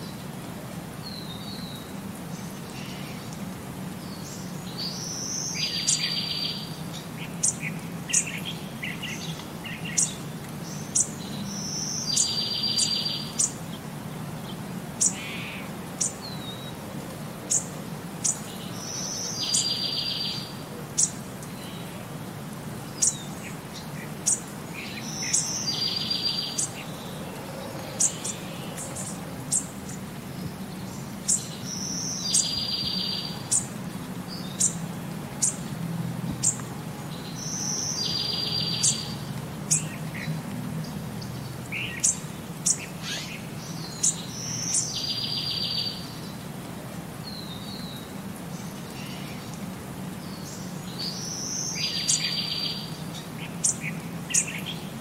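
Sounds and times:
bird chirping: 23.0s - 33.7s.

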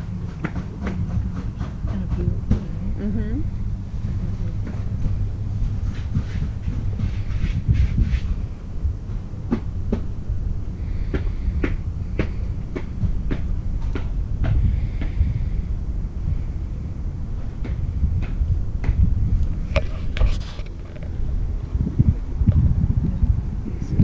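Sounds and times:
wind buffeting microphone: 0.0s - 24.0s
footsteps ticking: 4.0s - 8.4s.

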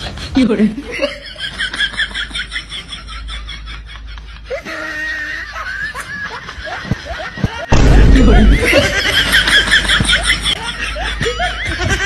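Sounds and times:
high-pitched giggles: 3.6s - 12.0s.

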